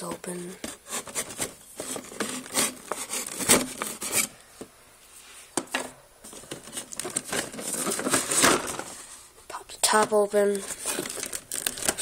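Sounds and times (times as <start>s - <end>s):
knife scraping cardboard: 0.8s - 4.3s.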